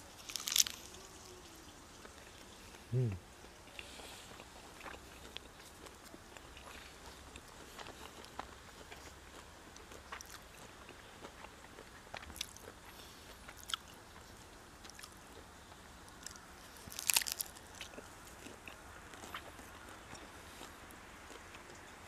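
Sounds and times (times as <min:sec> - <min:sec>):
crunching bite: 0:00.0 - 0:01.3, 0:03.8 - 0:14.2, 0:16.1 - 0:21.8
mouth chewing sounds: 0:00.0 - 0:22.0.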